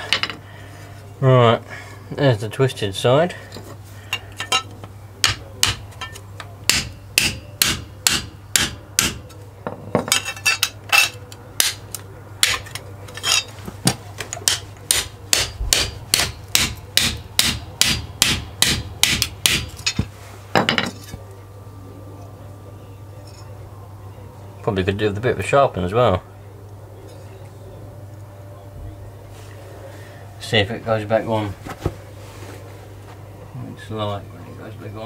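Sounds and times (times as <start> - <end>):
hammer striking steel blade: 4.4 - 9.2, 14.4 - 20.0.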